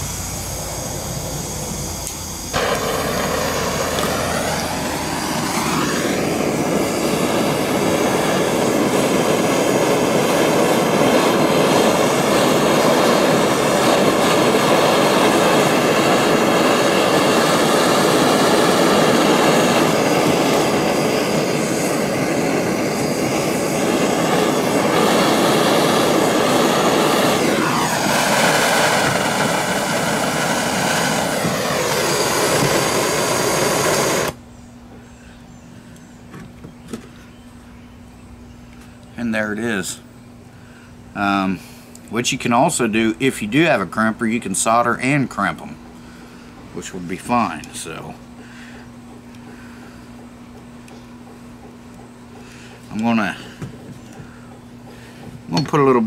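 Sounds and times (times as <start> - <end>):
gas torch hissing: 0.0 - 34.4, 41.1 - 56.0
whistling tone of flame: 0.0 - 34.7, 41.2 - 56.0.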